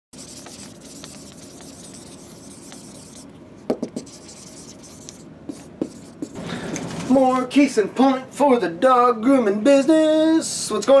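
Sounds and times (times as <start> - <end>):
marker rubbing on whiteboard: 0.2 - 6.4.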